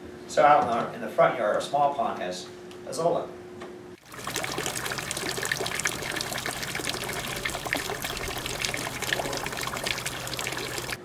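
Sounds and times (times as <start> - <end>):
water pouring into pond: 4.0 - 11.0.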